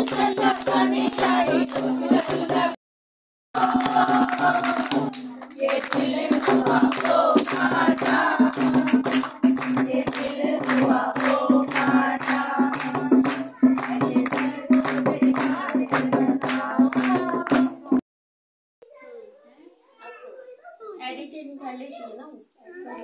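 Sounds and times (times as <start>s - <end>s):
women singing together: 0.0s - 2.8s, 3.6s - 18.0s
hand drum beating: 3.6s - 18.0s.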